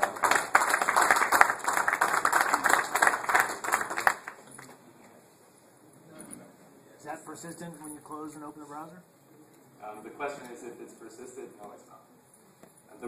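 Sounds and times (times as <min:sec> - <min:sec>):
audience applauding: 0:00.0 - 0:04.7.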